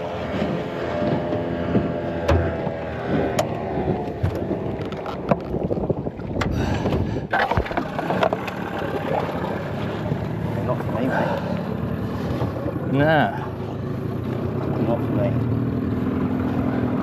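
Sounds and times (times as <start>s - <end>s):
outboard motor idling: 0.0s - 17.0s
sharp knocks on boat fittings: 1.7s - 3.6s.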